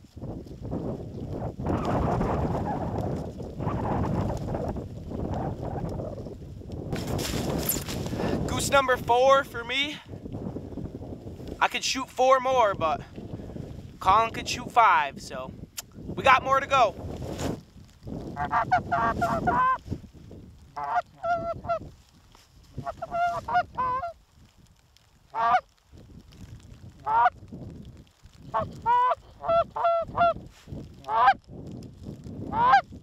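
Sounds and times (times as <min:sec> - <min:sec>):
geese honking: 0:22.8 - 0:24.2, 0:28.6 - 0:30.4.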